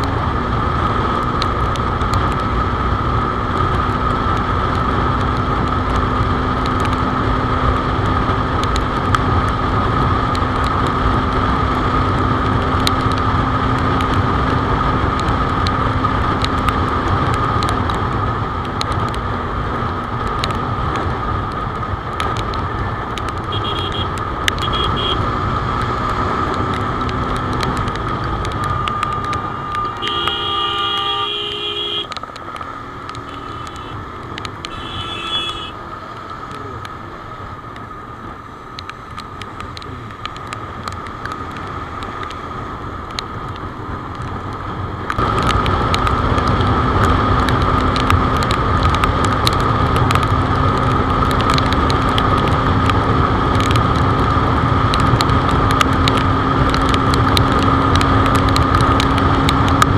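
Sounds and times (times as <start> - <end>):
motorcycle engine at highway speed: 0.0 - 59.9
wet road noise: 0.0 - 59.9
vehicle horn: 23.5 - 25.2, 29.0 - 32.1, 33.2 - 34.0, 34.7 - 35.8.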